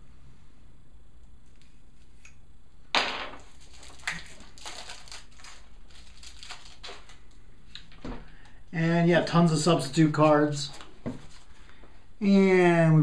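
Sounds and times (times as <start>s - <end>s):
cards rustling and flicking: 3.4s - 7.8s.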